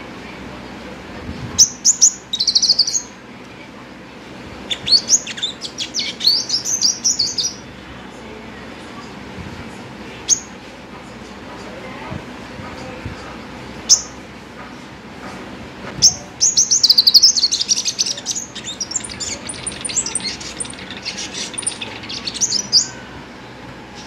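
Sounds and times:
bird singing high trills: 1.6s - 3.2s, 4.6s - 7.7s, 13.9s - 14.2s, 16.0s - 23.2s.

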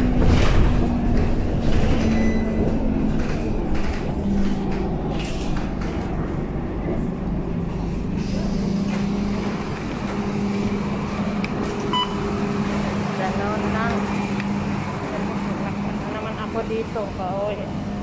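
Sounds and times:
bus engine hum: 0.0s - 18.0s
road rumble: 0.0s - 18.0s
short electronic beep: 11.9s - 12.2s.

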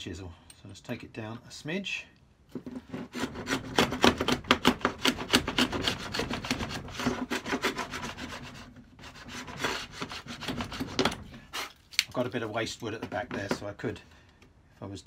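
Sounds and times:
hand plane scraping wood: 2.6s - 11.7s.

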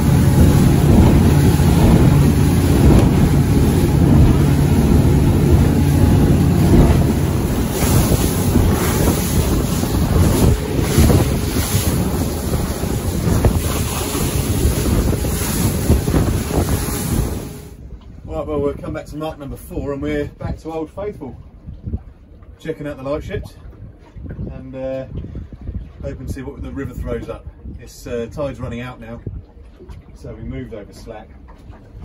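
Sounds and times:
rushing water: 0.0s - 17.8s
outboard motor running: 0.0s - 18.1s
hull slapping waves: 0.0s - 32.0s
wind buffeting microphone: 0.0s - 32.0s.

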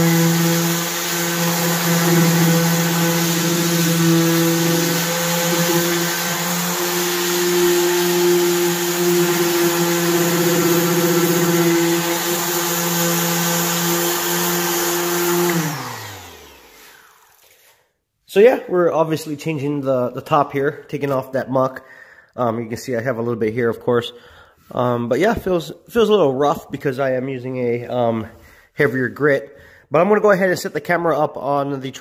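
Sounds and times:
motor winding down: 0.0s - 17.4s
orbital sander on wood: 0.0s - 17.6s.

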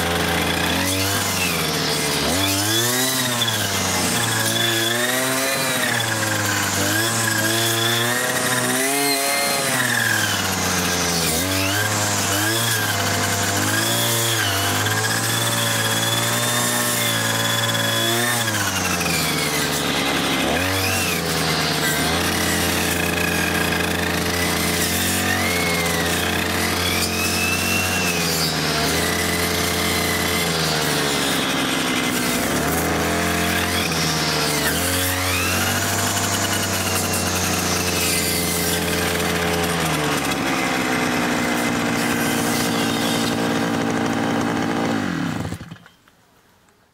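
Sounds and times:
string trimmer engine: 0.0s - 46.1s.

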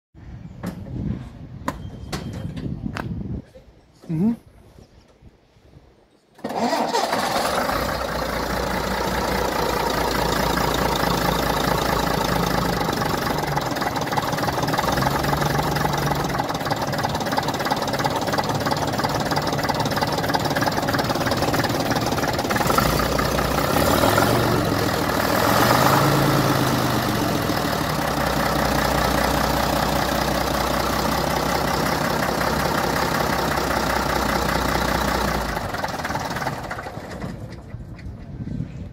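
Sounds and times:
diesel bus engine idling: 7.1s - 37.9s.

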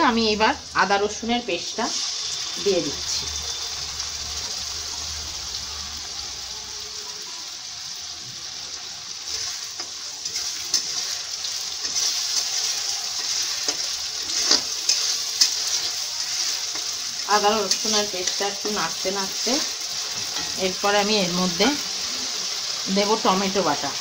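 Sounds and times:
onions sizzling in hot oil: 0.0s - 24.0s
metal spatula scraping a pan: 1.7s - 3.7s, 9.2s - 22.0s.

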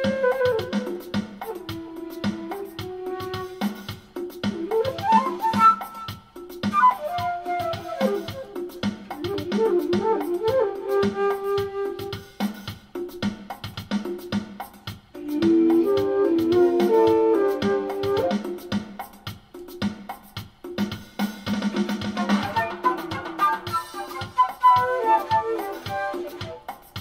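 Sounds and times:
flute melody with effects: 0.0s - 12.7s, 15.2s - 19.0s, 22.2s - 27.0s
steady backing beat: 0.0s - 27.0s.

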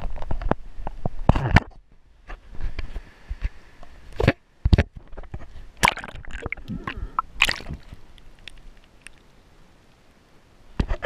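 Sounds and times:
water splashing and sloshing: 4.1s - 9.4s.

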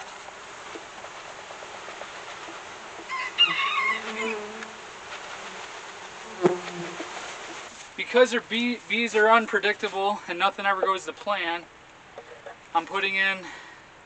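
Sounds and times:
honeybees buzzing: 0.0s - 10.0s.

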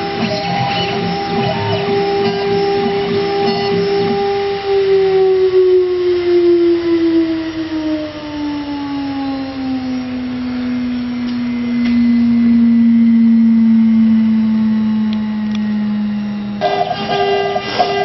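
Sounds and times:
cnc router spindle whine: 0.0s - 18.0s.

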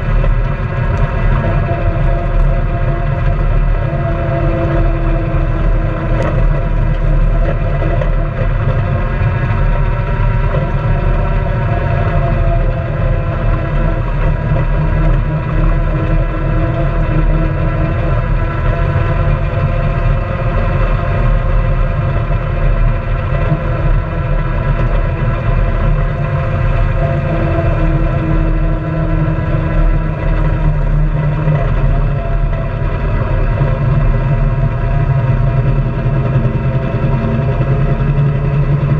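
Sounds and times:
engine running: 0.0s - 38.9s.

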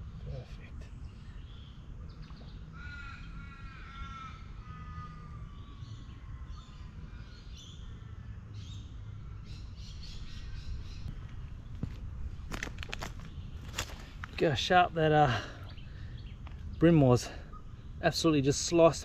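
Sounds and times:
crow cawing: 2.7s - 6.6s.

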